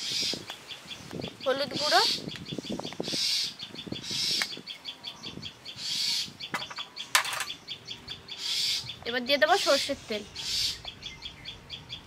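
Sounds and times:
birds chirping: 0.0s - 12.0s
loud noisy bird call: 0.0s - 12.0s.

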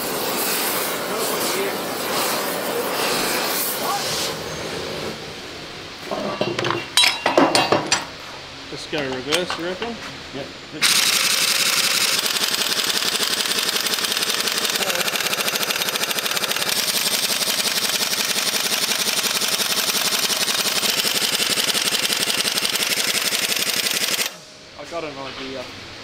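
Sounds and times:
pneumatic impact wrench hammering: 10.8s - 24.5s.

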